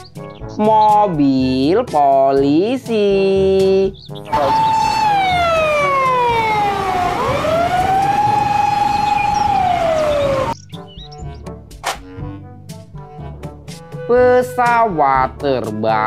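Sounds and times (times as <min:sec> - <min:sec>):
police siren wailing: 0:04.3 - 0:10.6.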